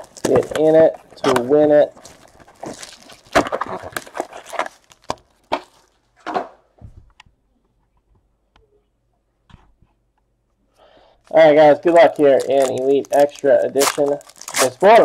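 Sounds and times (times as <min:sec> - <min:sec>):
foil crinkling: 0:00.0 - 0:05.9, 0:11.3 - 0:15.0
card packs knocking and clicking: 0:00.0 - 0:06.5.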